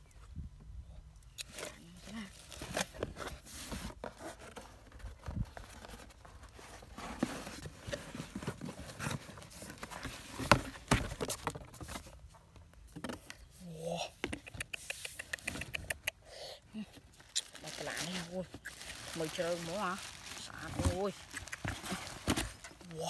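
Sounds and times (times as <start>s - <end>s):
cardboard flaps rustling: 2.5s - 12.3s, 18.0s - 22.9s.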